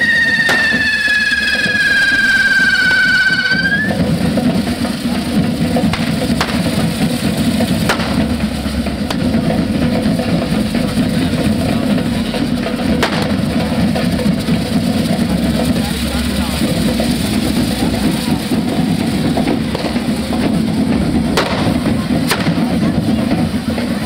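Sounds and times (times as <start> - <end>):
drum band playing: 0.0 - 24.0
sharp cracks: 0.2 - 2.1, 5.9 - 6.8, 7.8 - 8.4, 13.0 - 13.5, 21.4 - 22.6.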